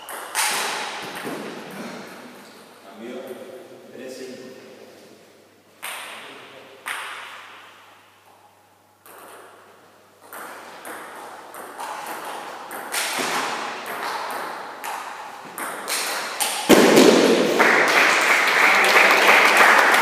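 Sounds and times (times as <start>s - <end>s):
ping pong ball clicking: 0.0s - 1.3s, 9.0s - 9.6s, 10.2s - 13.2s
applause and cheering: 17.5s - 20.0s.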